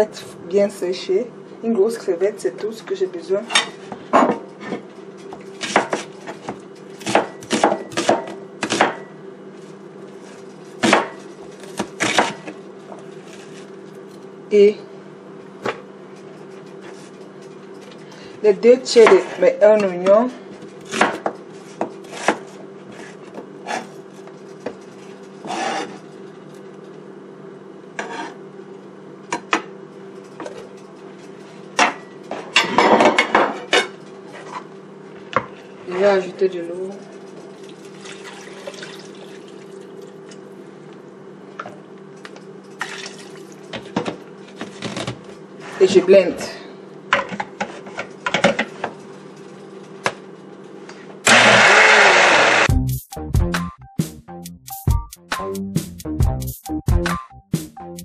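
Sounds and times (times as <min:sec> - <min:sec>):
knife chopping onion on board: 0:05.6 - 0:06.1, 0:07.0 - 0:09.1, 0:10.8 - 0:12.5, 0:20.8 - 0:22.5.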